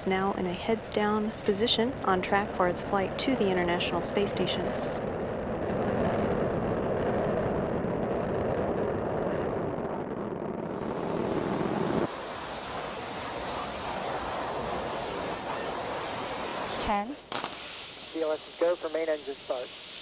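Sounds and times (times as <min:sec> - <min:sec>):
rocket launch rumble: 0:00.0 - 0:20.0
thin hiss: 0:12.1 - 0:20.0.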